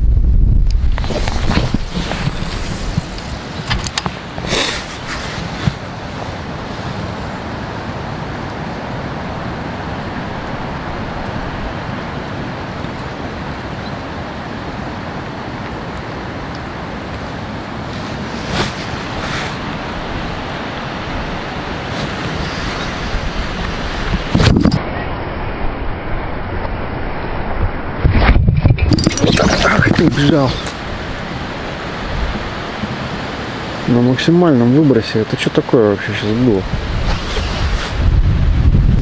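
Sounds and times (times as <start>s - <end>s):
wind buffeting microphone: 0.0s - 35.2s, 35.9s - 39.0s
microphone handling clicks: 0.6s - 5.9s, 23.6s - 24.8s.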